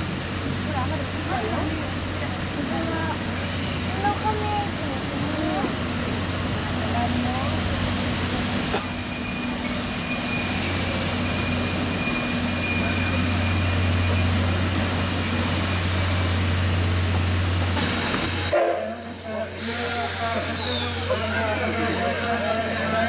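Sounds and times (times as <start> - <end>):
low locomotive drone: 0.0 - 23.0
steam hissing: 19.4 - 21.8.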